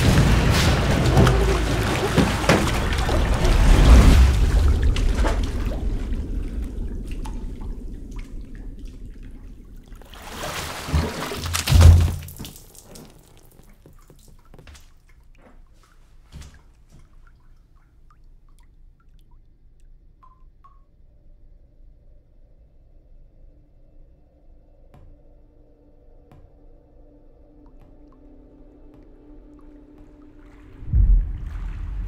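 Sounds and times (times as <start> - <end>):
loud splash with low thud: 0.0 - 12.8, 30.5 - 32.0
bathwater sloshing and splashing: 0.0 - 19.5, 27.6 - 32.0
faint water drips: 0.0 - 21.0, 26.3 - 32.0.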